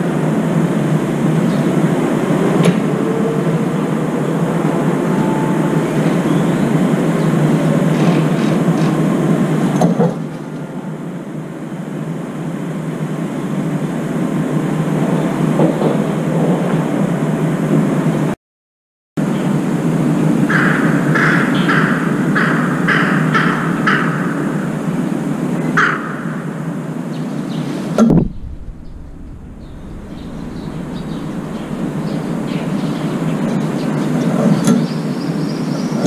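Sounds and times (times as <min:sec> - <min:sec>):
outdoor hissing rumble: 0:27.7 - 0:35.9.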